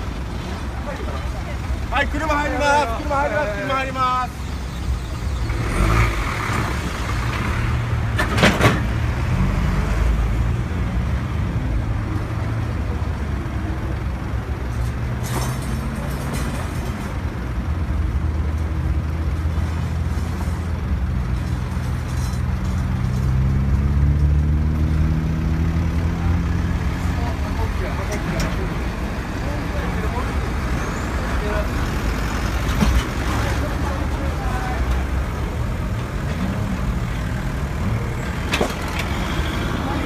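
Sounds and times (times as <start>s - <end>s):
traffic engines running: 0.0s - 40.0s
vehicle accelerating: 5.4s - 13.4s, 22.8s - 40.0s.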